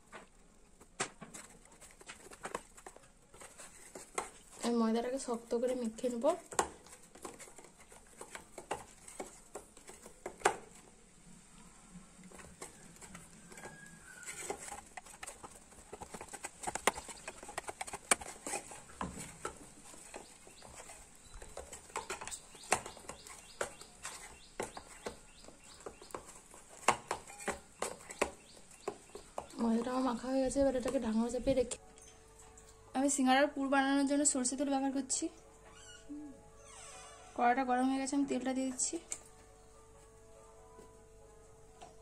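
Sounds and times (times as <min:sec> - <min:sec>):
hands kneading dough in bowl: 0:00.0 - 0:11.0, 0:11.6 - 0:31.8.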